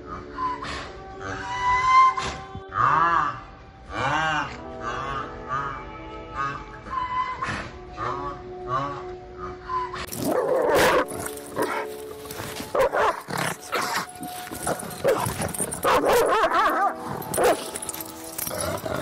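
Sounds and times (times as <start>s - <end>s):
dog barking: 12.7s - 13.2s, 15.8s - 17.8s.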